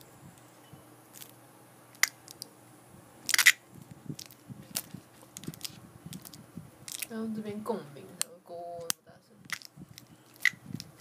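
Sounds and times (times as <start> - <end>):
soft handling rumble: 0.0 - 11.0
plastic bag crackling: 3.2 - 7.3.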